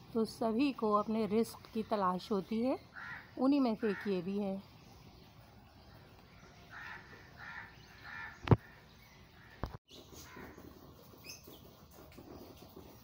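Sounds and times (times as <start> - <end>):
harsh bird calls: 6.0 - 10.6.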